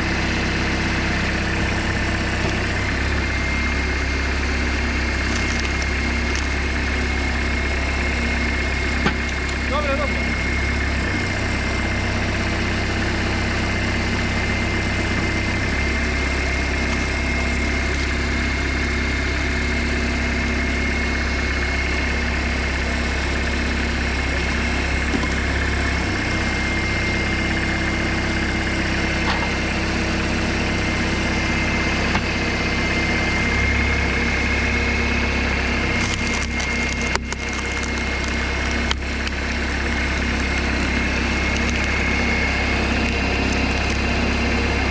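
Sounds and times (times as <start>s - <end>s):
high hydraulic whine: 0.0s - 44.9s
tractor engine running: 0.0s - 44.9s
wood creaking and cracking: 1.4s - 2.9s, 5.1s - 7.0s, 9.0s - 9.7s, 16.5s - 18.5s, 35.8s - 44.9s.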